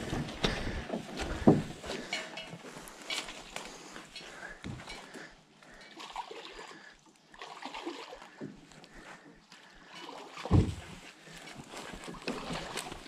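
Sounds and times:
footsteps splashing through creek: 5.8s - 13.0s
knocks and thud: 10.5s - 10.9s.

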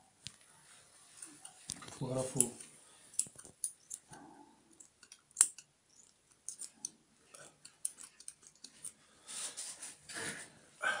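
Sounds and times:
scissors snipping: 4.8s - 6.9s
metal instruments clicking: 4.8s - 9.0s.

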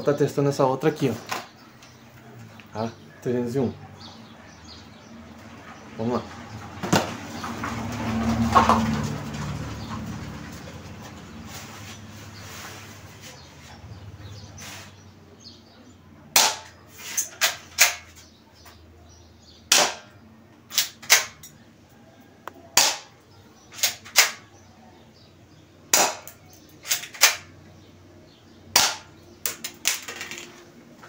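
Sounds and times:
airsoft pistol firing: 16.4s - 16.7s, 19.7s - 20.1s, 22.8s - 23.1s, 23.8s - 24.4s, 25.9s - 26.3s, 28.8s - 29.1s.

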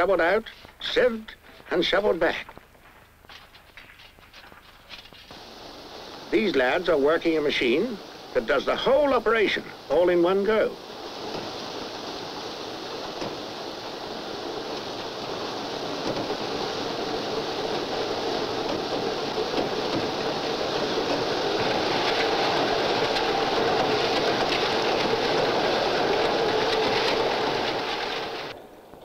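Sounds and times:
ballast cleaning machine rushing: 5.2s - 28.7s.

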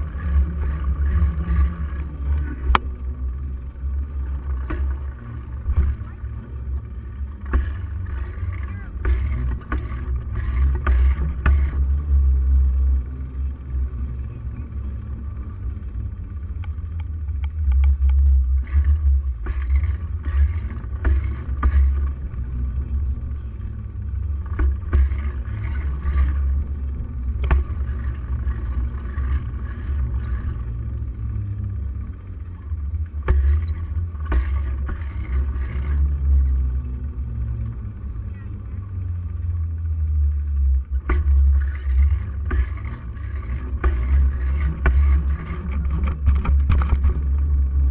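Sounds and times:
wind and road rumble: 0.0s - 47.9s
clicks and rattles: 16.6s - 23.5s, 24.2s - 30.9s, 41.0s - 47.9s.

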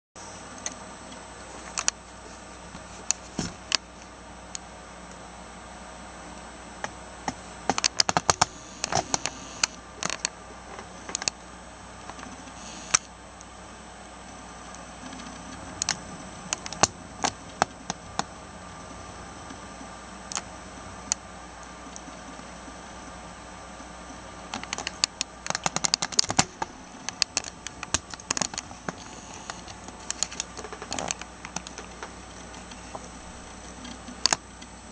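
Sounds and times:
steady hiss: 0.2s - 34.9s.

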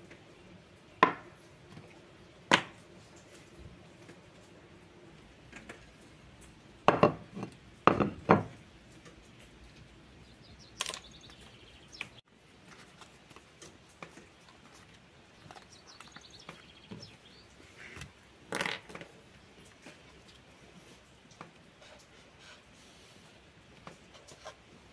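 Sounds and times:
objects knocking on wooden table: 1.0s - 1.2s, 6.9s - 8.6s.

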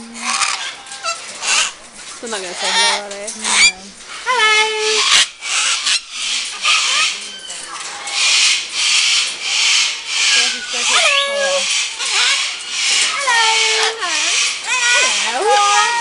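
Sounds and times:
cockatoos screeching: 0.2s - 1.8s, 2.5s - 16.0s
high bending squawks: 2.6s - 16.0s.

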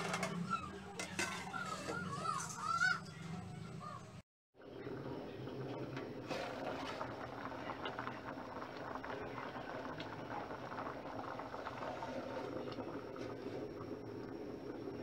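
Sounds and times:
pot boiling with small pops: 5.7s - 15.0s.

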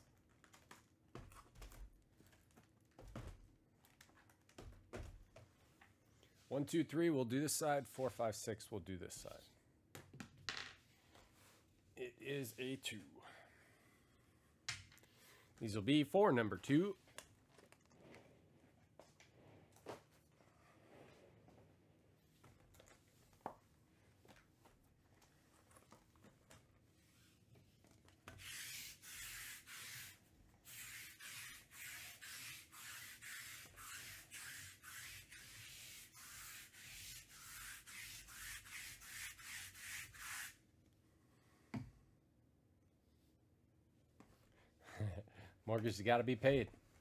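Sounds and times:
lint roller rasping on fabric: 28.4s - 40.6s.

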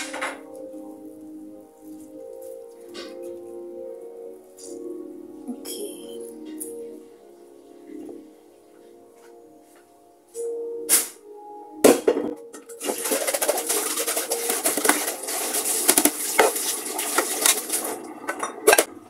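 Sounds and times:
dishes clattering and rattling: 11.9s - 18.9s.

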